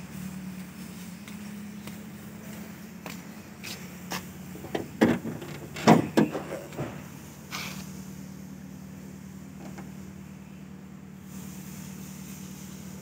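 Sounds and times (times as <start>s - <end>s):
car engine idling: 0.0s - 13.0s
car bonnet latch clicks and clunks: 4.6s - 7.1s, 9.6s - 9.9s.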